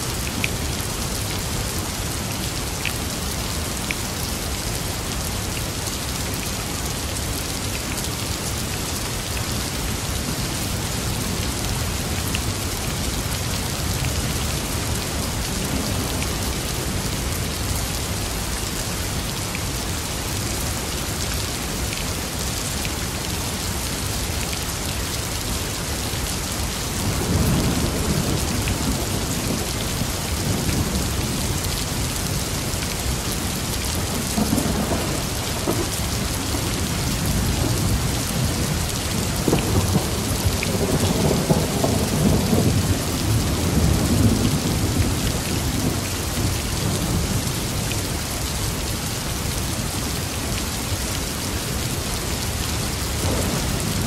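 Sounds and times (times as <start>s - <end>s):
steady rain: 0.0s - 54.0s
thunder rumbling: 53.2s - 54.0s.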